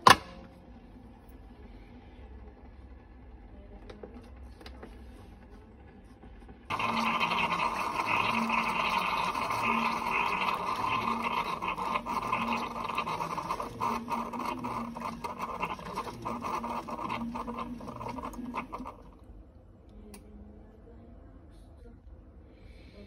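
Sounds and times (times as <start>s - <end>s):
low pump pulse: 4.9s - 19.3s
coffee streaming into mug: 6.2s - 19.3s
drips and sputters: 6.7s - 19.2s.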